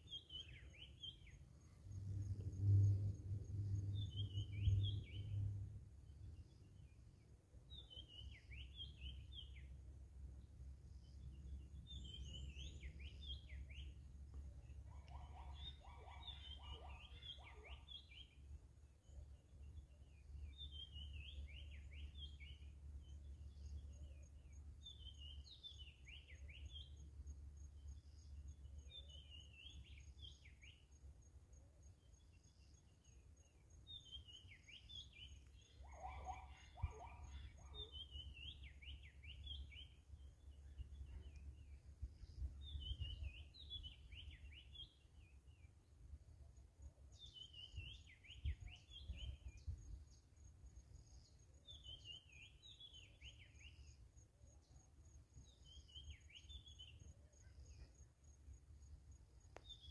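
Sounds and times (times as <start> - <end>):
lower-pitched bird call: 14.9 - 18.3, 34.0 - 40.0.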